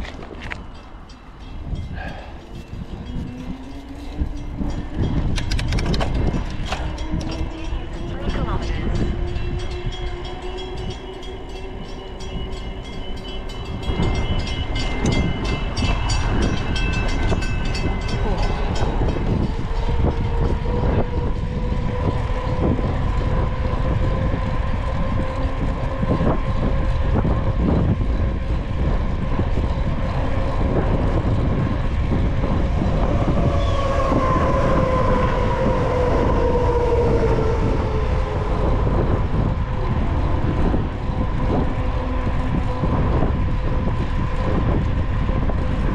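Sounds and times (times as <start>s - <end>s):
train wheels clicking: 0.0s - 8.4s
low rushing noise: 0.0s - 45.9s
train whine: 0.0s - 45.9s.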